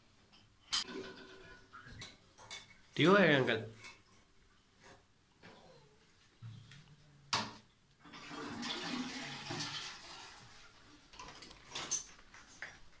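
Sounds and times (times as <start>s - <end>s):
toilet water rushing: 8.0s - 10.7s.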